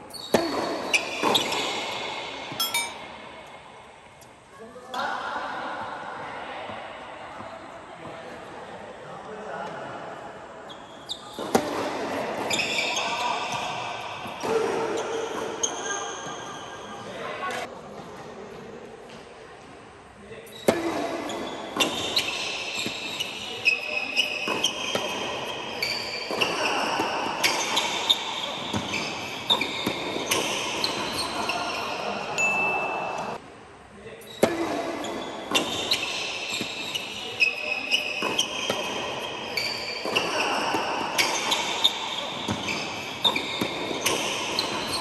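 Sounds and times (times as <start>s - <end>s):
shoes squeaking on hard court: 0.0s - 3.0s, 10.7s - 17.7s, 20.5s - 33.4s, 34.2s - 45.0s
rackets hitting tennis balls: 11.4s - 12.7s, 34.3s - 45.0s.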